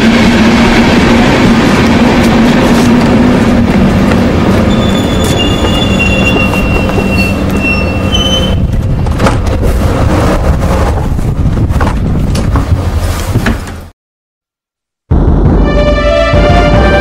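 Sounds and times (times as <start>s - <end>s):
train low rumble: 0.0s - 13.9s, 15.1s - 17.0s
train brakes squealing: 4.7s - 8.6s.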